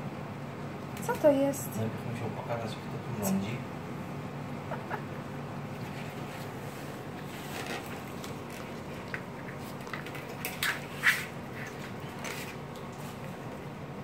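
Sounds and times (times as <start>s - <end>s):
plastic brush scraping on floor: 5.9s - 8.8s, 9.5s - 13.3s.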